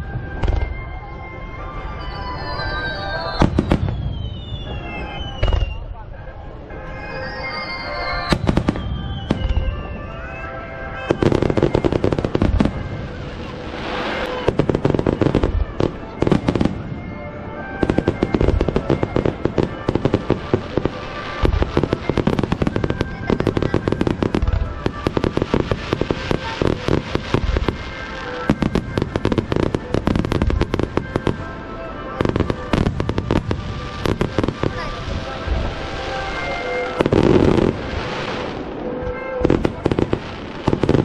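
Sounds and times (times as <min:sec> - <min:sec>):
fireworks bursting and crackling: 0:00.0 - 0:41.0.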